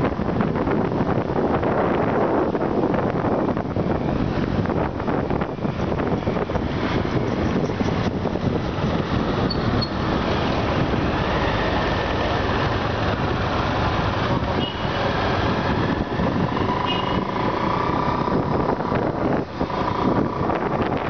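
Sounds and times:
road traffic: 0.0s - 21.0s
wind rushing over microphone: 0.0s - 21.0s
motorbike engine: 7.2s - 21.0s.

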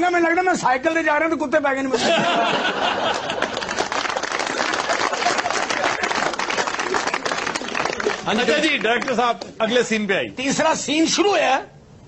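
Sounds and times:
audience laughing: 1.9s - 9.1s
audience applauding: 3.0s - 9.6s.

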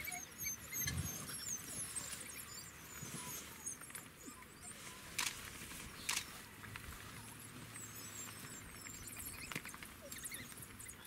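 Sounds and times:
wild dogs chirping: 0.0s - 11.0s
sharp clicks: 5.1s - 6.9s.

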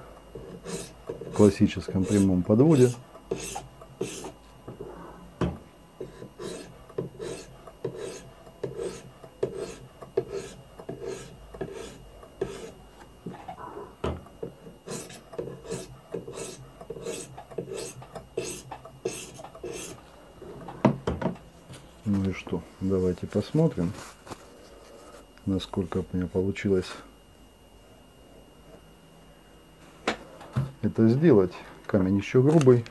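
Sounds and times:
sharpening stone rasping on knife blade: 14.9s - 20.0s.

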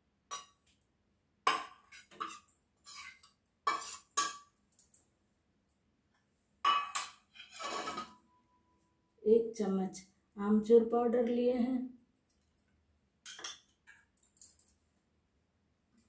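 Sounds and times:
metal bowls clinking: 6.7s - 8.2s.

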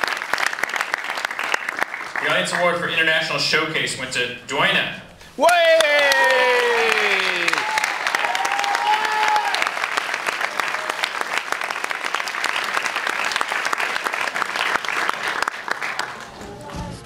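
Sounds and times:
audience applauding: 0.0s - 2.6s, 5.4s - 17.0s
music: 16.0s - 17.0s.

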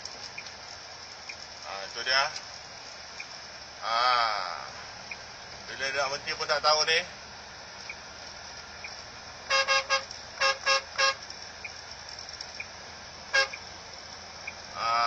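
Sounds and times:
highway road noise: 0.0s - 15.0s
vehicle horn toots: 9.5s - 11.2s, 13.3s - 13.6s.

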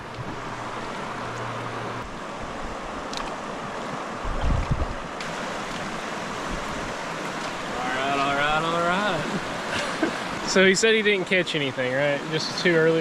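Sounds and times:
river rapids rushing: 0.0s - 13.0s
wind buffeting microphone: 3.9s - 8.6s.

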